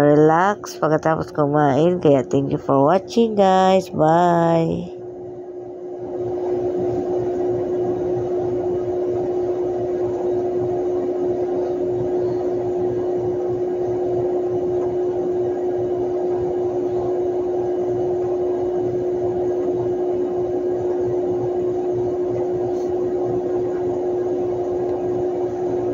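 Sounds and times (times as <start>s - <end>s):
steady held tone: 0.0s - 25.9s.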